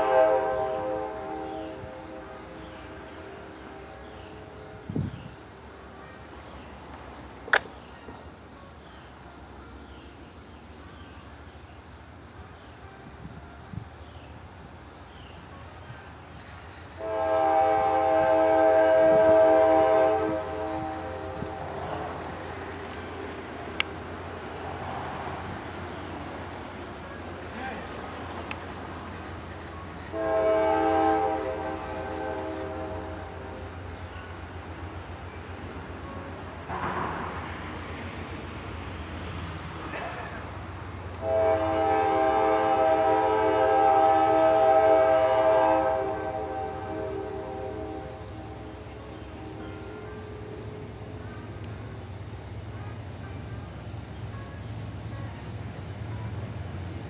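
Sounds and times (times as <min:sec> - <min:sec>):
locomotive air horn blast: 0:00.0 - 0:05.0, 0:17.0 - 0:22.6, 0:30.1 - 0:33.9, 0:36.0 - 0:37.5, 0:41.2 - 0:49.6
train rumbling: 0:00.0 - 0:57.0.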